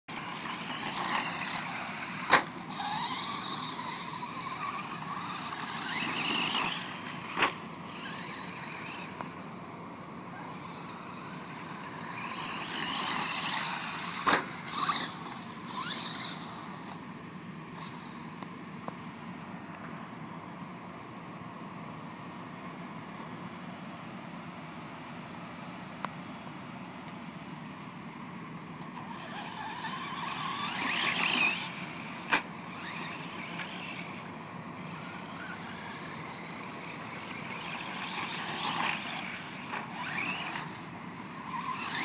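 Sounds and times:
electric motors whining: 0:00.1 - 0:20.0, 0:28.8 - 0:42.0
tyres rushing on dirt: 0:28.9 - 0:42.0.

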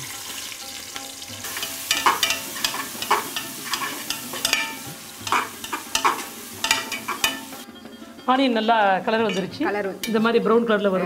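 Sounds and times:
onions sizzling in hot oil: 0:00.0 - 0:07.7
metal spoon scraping a pot: 0:01.4 - 0:08.3.

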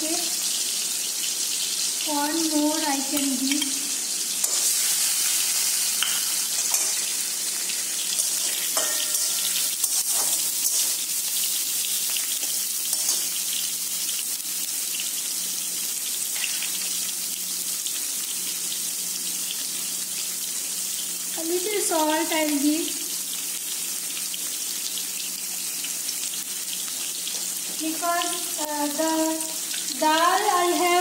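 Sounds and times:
hot oil sizzling: 0:00.0 - 0:31.0
metal spatula scraping a pan: 0:06.0 - 0:07.2, 0:08.1 - 0:11.0, 0:12.9 - 0:13.4.

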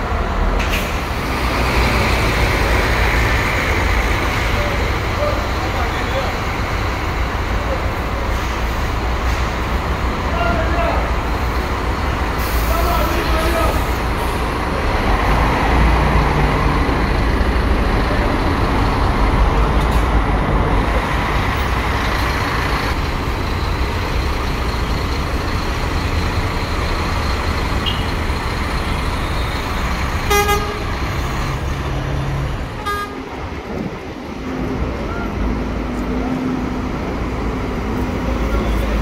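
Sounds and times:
diesel bus engines rumbling: 0:00.0 - 0:39.0
bus horn toots: 0:30.3 - 0:31.0, 0:32.8 - 0:33.3.

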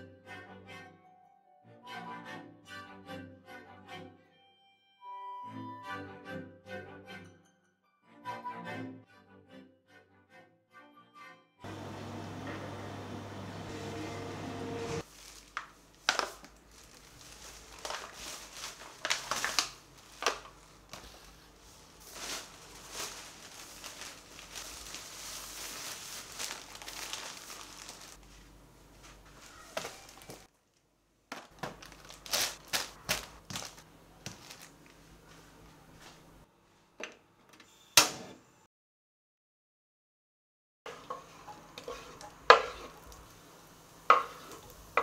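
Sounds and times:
plastic bags crinkling: 0:15.0 - 0:28.4, 0:29.2 - 0:35.0.

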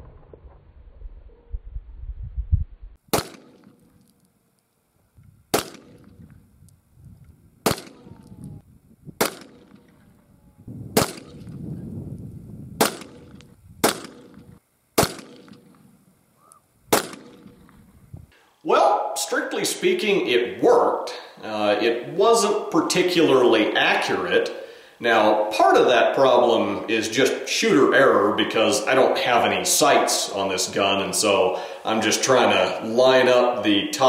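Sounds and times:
low rumble: 0:00.0 - 0:03.0
gunshots with echo: 0:03.1 - 0:03.7, 0:05.5 - 0:06.2, 0:07.6 - 0:08.2, 0:09.2 - 0:10.0, 0:11.0 - 0:11.5, 0:12.8 - 0:14.4, 0:15.0 - 0:15.7, 0:16.9 - 0:17.6.

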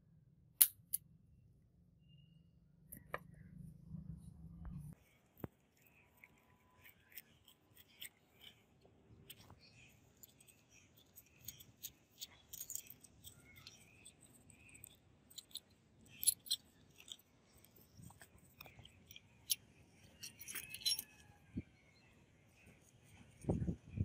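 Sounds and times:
screwdriver clicks and scrapes on metal: 0:10.2 - 0:21.2.

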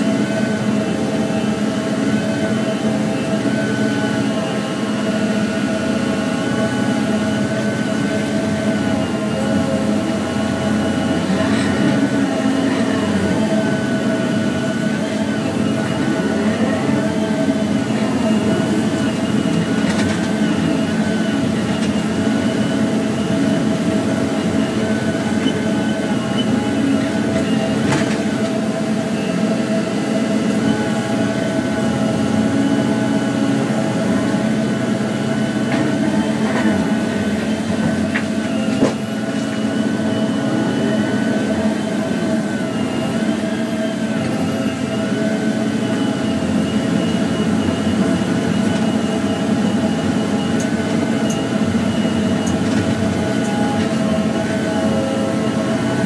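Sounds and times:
diesel engine running under load: 0:00.0 - 0:56.0
hydraulic whine: 0:00.0 - 0:56.0.

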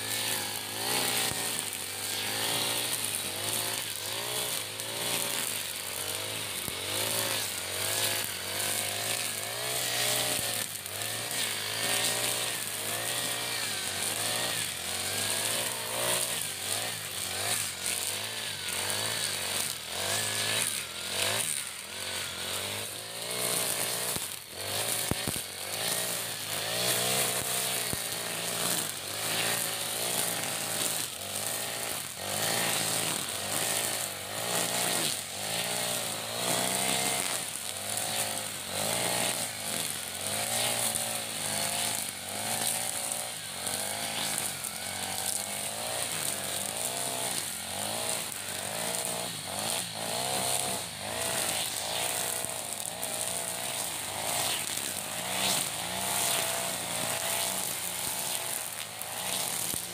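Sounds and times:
brush cutter engine revving: 0:00.0 - 0:59.9
trimmer line cutting grass: 0:00.0 - 0:59.9.

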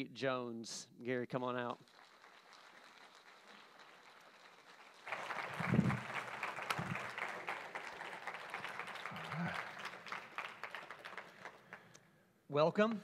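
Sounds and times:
audience applause: 0:01.8 - 0:12.0.

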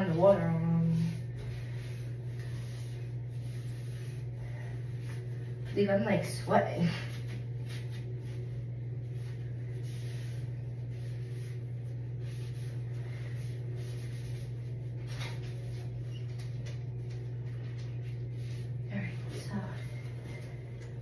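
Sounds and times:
steady low hum: 0:00.0 - 0:21.0
wipe rubbing surfaces: 0:00.1 - 0:06.0, 0:07.1 - 0:16.0.

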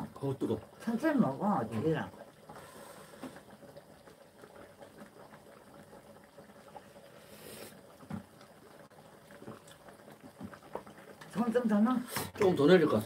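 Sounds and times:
porridge bubbling in a pot: 0:00.0 - 0:13.0
breathy tasting sound: 0:07.0 - 0:07.9.

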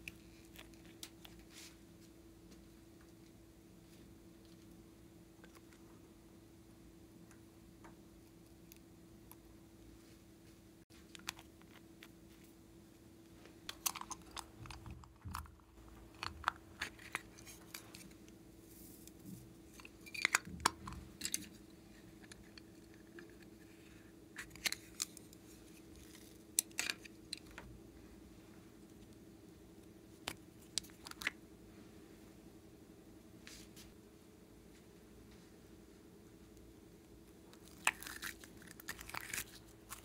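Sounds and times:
faint steady hum: 0:00.0 - 0:40.0
plastic caps and lids clicking: 0:13.7 - 0:18.1.

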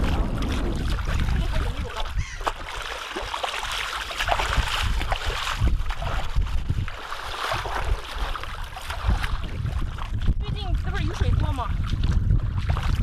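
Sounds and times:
footsteps splashing in shallow water: 0:00.0 - 0:13.0
wind rumbling on microphone: 0:00.0 - 0:13.0.

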